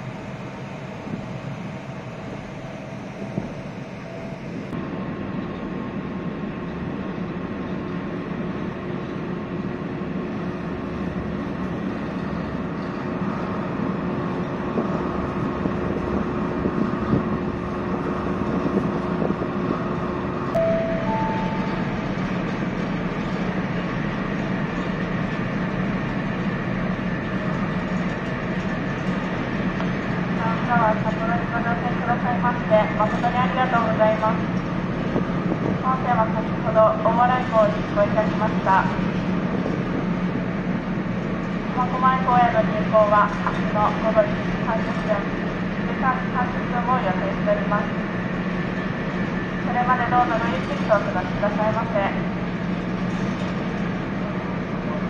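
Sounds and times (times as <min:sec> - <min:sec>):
ferry engine rumble: 0:00.0 - 0:55.0
two-note chime: 0:20.6 - 0:22.0.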